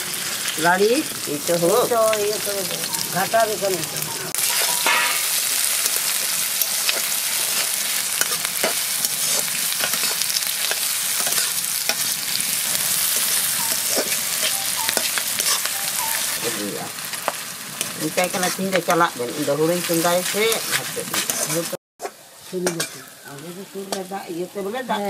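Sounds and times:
onions sizzling in hot oil: 0.0s - 25.0s
metal spatula scraping a pan: 4.4s - 16.6s, 17.2s - 18.9s, 19.8s - 23.2s.

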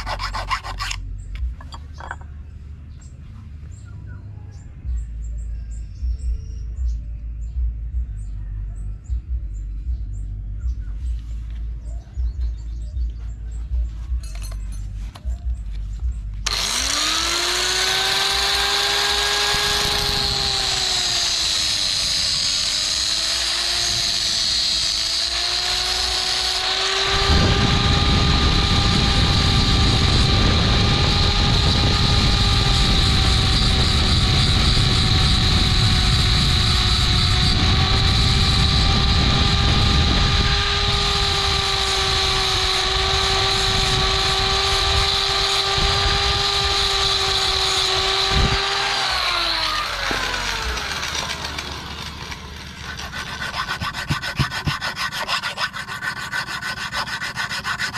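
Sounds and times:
angle grinder motor whine: 0.0s - 2.4s, 16.4s - 57.9s
grinding disc on metal wire: 0.0s - 2.4s, 16.4s - 57.9s.

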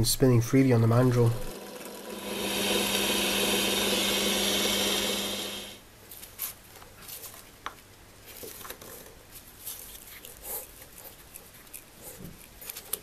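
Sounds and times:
handling noise rustling and scraping: 6.0s - 13.0s.

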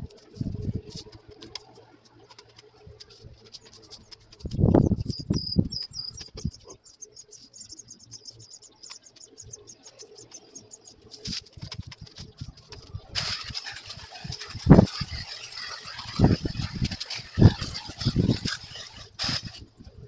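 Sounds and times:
small bird ticking chirps: 3.5s - 11.1s
branches rustling and crunching: 11.0s - 19.8s.

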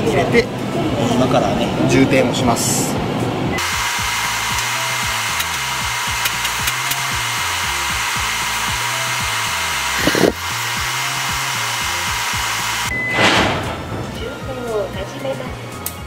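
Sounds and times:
service machine rushing hiss: 3.6s - 12.9s.

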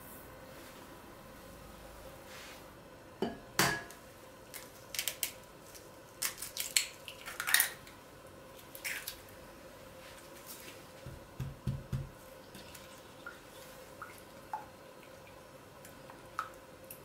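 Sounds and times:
egg cracking on bowl rim: 6.2s - 8.0s.

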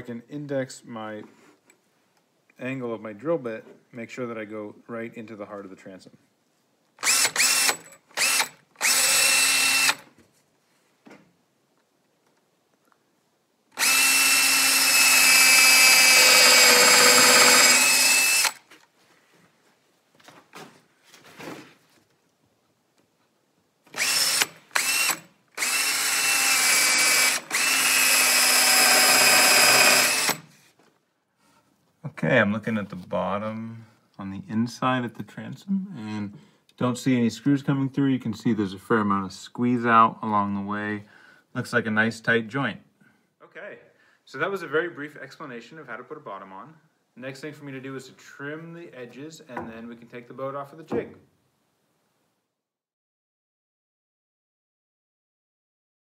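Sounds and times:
cordless drill motor whining: 7.0s - 10.1s, 13.8s - 18.7s, 23.9s - 30.5s.

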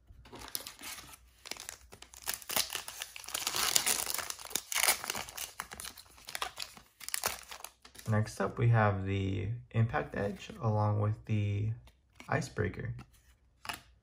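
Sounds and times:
foil wrapper tearing and crinkling: 0.4s - 7.8s.

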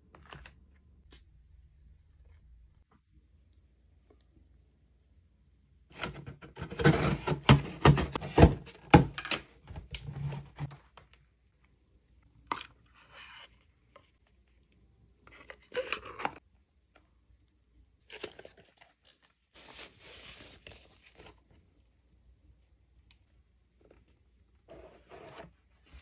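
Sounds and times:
cardboard rustling and scraping: 5.9s - 10.8s, 24.7s - 26.0s.

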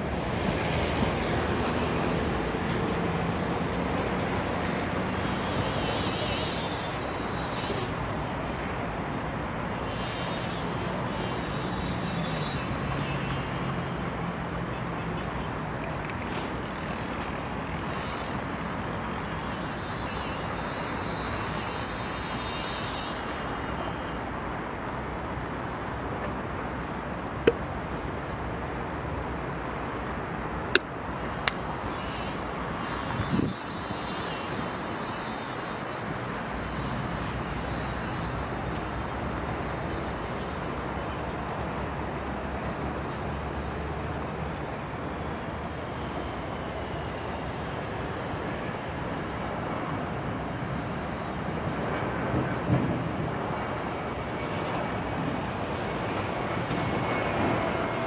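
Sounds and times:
distant jet engines roaring: 0.0s - 58.0s.

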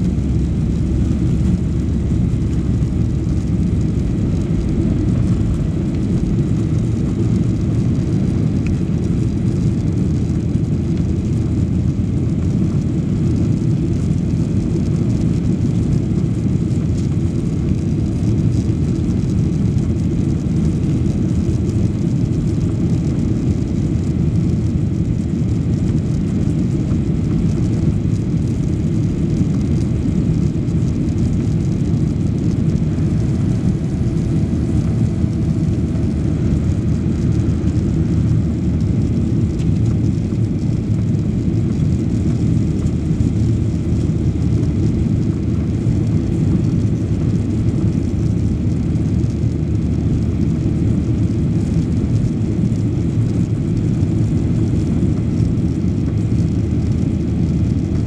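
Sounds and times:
rushing airflow: 0.0s - 9.2s, 30.5s - 40.9s
jet engines droning: 0.0s - 11.4s, 27.2s - 50.3s.

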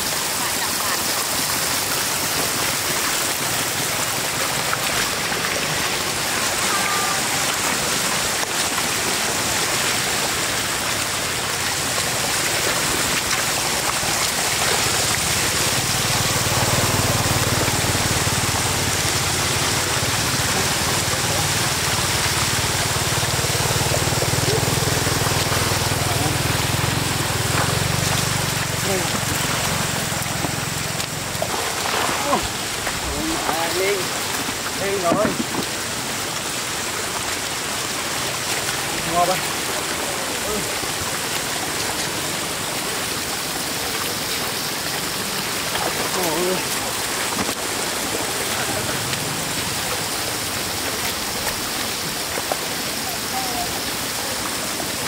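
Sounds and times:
rushing floodwater: 0.0s - 55.0s.

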